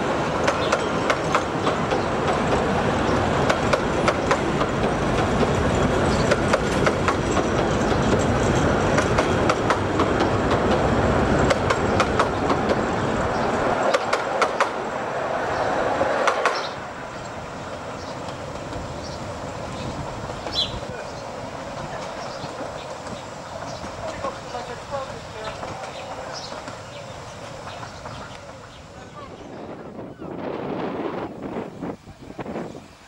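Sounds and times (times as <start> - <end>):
wheels clacking over rail joints: 0.0 - 29.2
train carriages rumbling on track: 0.0 - 33.0.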